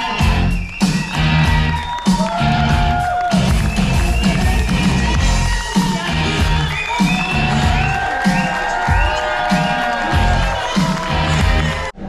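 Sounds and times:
loud rock music with guitar: 2.4 - 8.4.

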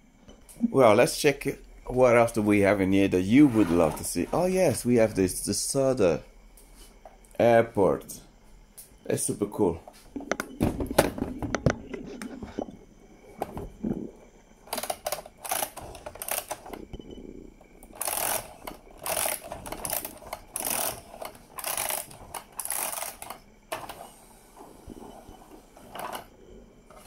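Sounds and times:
scraping and rustling: 3.3 - 4.6
toy playset clicks: 14.7 - 16.8, 18.0 - 24.0.

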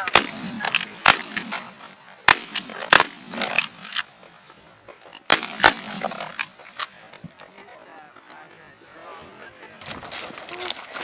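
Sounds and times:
faint gunshots: 0.0 - 4.0, 5.3 - 6.6
shotgun blasts: 0.0 - 4.0, 5.3 - 6.6.

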